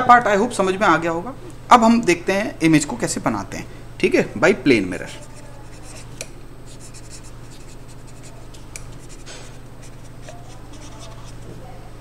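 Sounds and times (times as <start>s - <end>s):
steady low hum: 0.0s - 12.0s
felt-tip pen scratching on paper: 5.2s - 11.4s.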